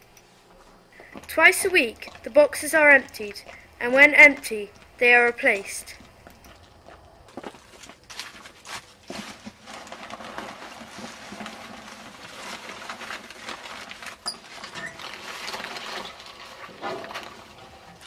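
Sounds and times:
paper rustling and crackling: 7.4 - 18.0.

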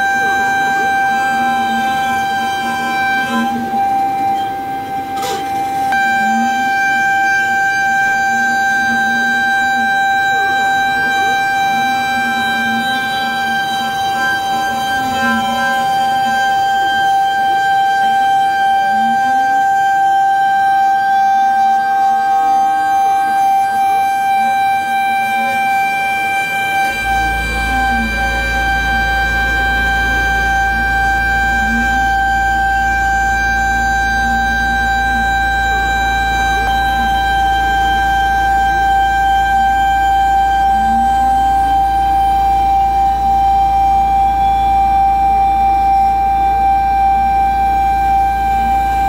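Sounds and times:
end mill cutting metal: 0.0 - 17.8
high spindle whine: 0.0 - 49.0
low hum: 21.8 - 49.0.

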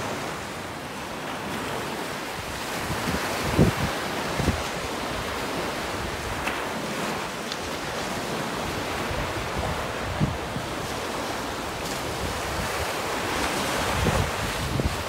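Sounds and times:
waves washing on sandy beach: 0.0 - 15.0
wind rumble on microphone: 2.4 - 6.5, 7.8 - 15.0.

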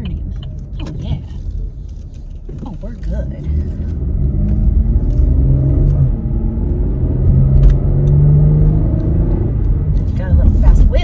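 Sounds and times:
car engine and road rumble: 0.0 - 11.0.

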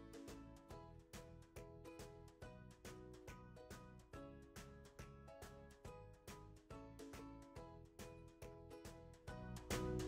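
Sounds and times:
quiet background music: 0.0 - 10.0.

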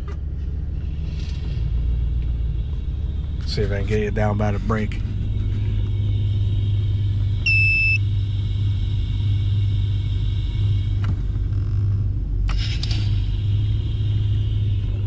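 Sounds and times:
car engine idling: 0.0 - 15.0
brake booster hiss: 0.4 - 11.9, 12.5 - 15.0
short beep: 7.4 - 8.1.

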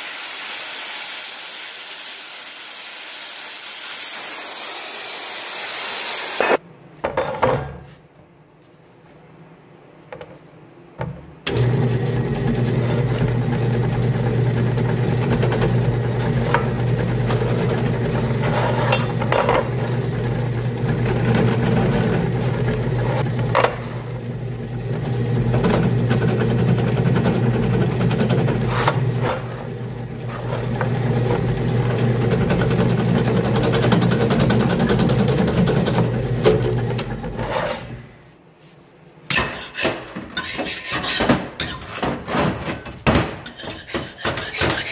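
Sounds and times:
drill press motor humming: 11.5 - 37.3.

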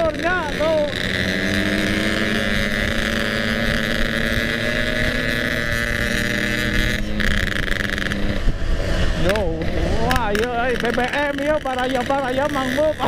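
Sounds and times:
motorcycle engine cruising: 0.0 - 13.0
wind noise on microphone: 1.6 - 10.8.

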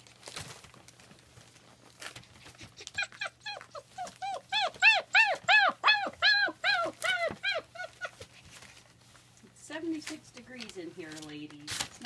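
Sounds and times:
puppy whining and yelping: 2.3 - 8.9.

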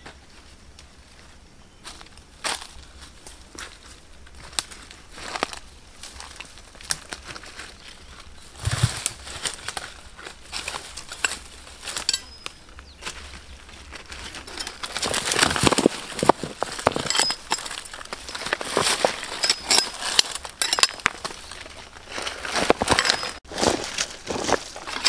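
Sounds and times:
stones shifting in dry soil: 1.0 - 25.0
machete clinking on rocks: 8.6 - 9.7, 10.6 - 12.7, 14.3 - 21.8, 22.6 - 23.4.

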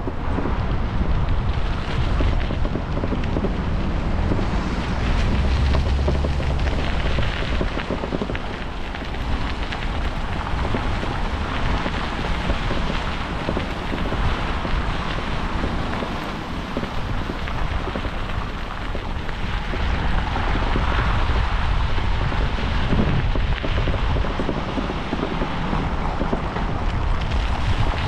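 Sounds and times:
tyres crackling on path: 0.0 - 28.0
wind buffeting microphone: 0.0 - 28.0.

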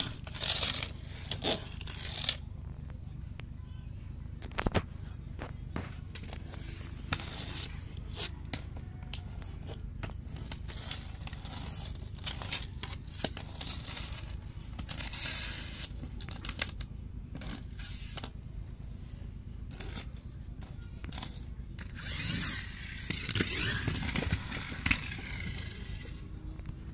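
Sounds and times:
toy truck scraping on concrete: 0.0 - 2.5, 5.8 - 26.7
steady low hum: 0.0 - 26.9
plastic toys clicking and knocking: 8.4 - 18.5, 19.7 - 26.7.

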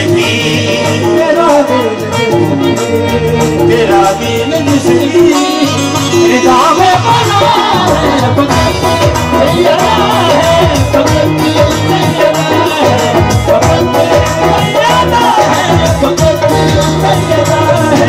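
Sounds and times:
harmonium melody: 0.0 - 18.0
tabla rhythm: 0.0 - 18.0
voices singing: 0.0 - 18.0.

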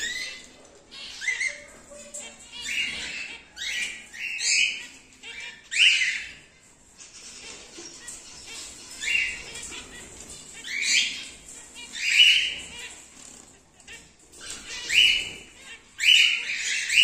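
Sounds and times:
cockatiel calls: 14.4 - 17.0.

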